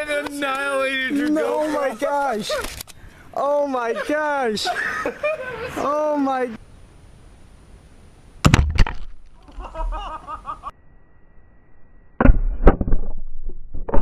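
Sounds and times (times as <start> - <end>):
plastic bottle bursting: 8.4 - 9.4
sharp cracks: 8.4 - 9.5.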